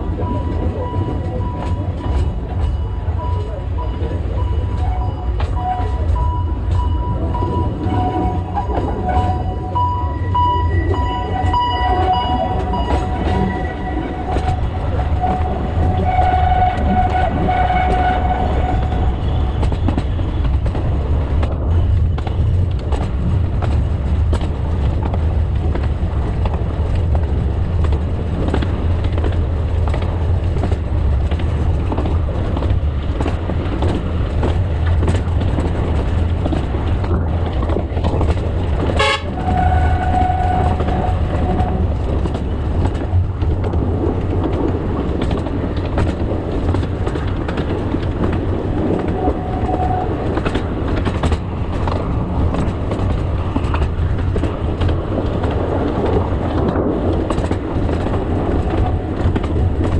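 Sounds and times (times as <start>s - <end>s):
train rumbling along track: 0.0s - 59.9s
train horn: 4.8s - 6.2s, 7.7s - 9.6s, 10.6s - 19.7s, 39.0s - 41.9s.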